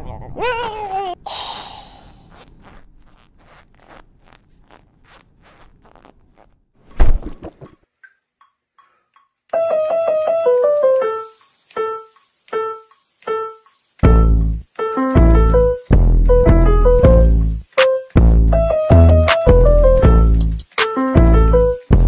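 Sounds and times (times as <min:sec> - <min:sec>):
loud thump: 0:06.9 - 0:07.7
grand piano playing: 0:09.6 - 0:11.4, 0:14.0 - 0:20.4, 0:21.0 - 0:21.9.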